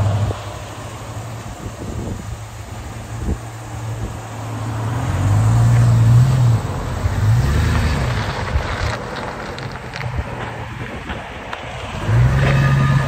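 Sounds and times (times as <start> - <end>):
truck engine accelerating: 0.0 - 13.0.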